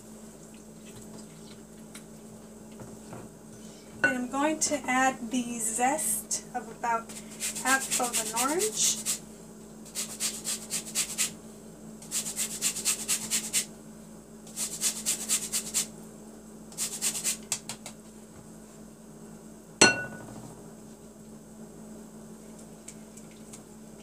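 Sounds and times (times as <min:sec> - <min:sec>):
knock on glass with ring: 0:19.8 - 0:20.3.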